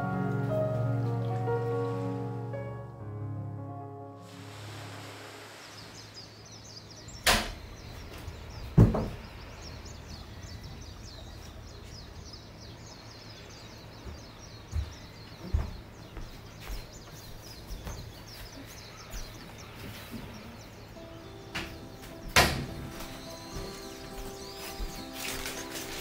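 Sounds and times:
sliding window knocks and thumps: 8.7 - 9.3.

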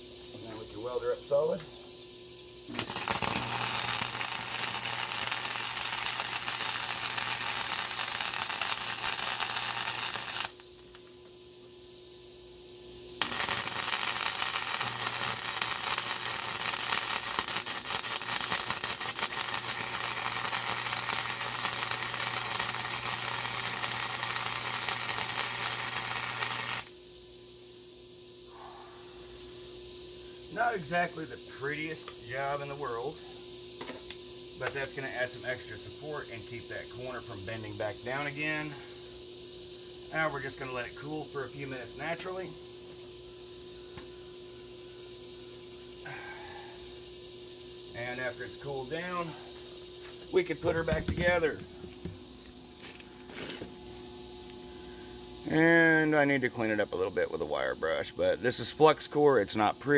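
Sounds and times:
welding arc crackling: 2.7 - 11.2, 13.2 - 27.0.

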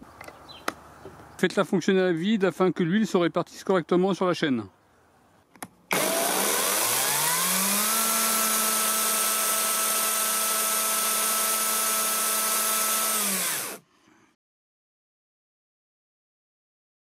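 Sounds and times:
cordless chainsaw whining: 5.9 - 13.8.

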